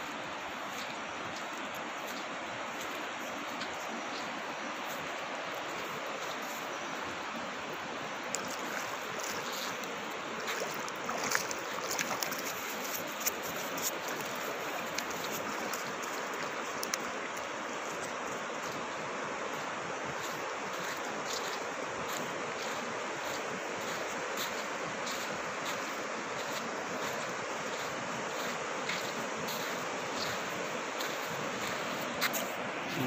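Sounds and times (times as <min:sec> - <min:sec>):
river water rushing: 0:00.0 - 0:33.0
sharp splashes and clicks: 0:08.2 - 0:18.8.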